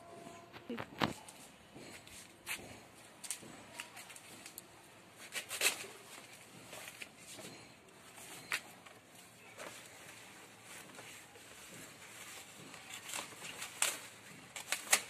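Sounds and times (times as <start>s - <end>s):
knife cutting leaves: 5.2s - 6.0s, 12.3s - 15.0s
banana leaves rustling: 5.2s - 7.1s, 9.5s - 15.0s.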